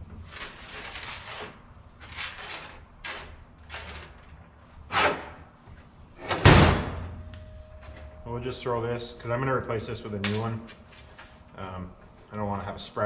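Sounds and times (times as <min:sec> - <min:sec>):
heavy metal clunk: 0:06.2 - 0:07.3.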